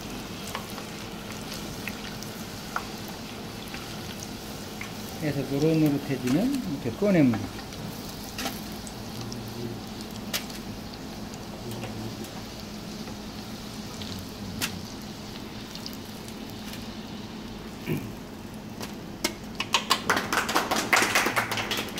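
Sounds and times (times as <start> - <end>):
deep-frying oil sizzle: 0.0 - 21.9.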